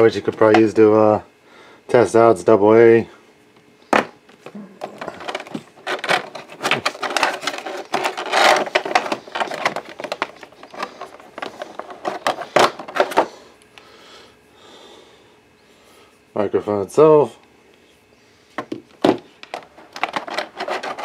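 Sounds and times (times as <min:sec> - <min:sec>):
plastic packaging crackling: 0:05.0 - 0:13.2.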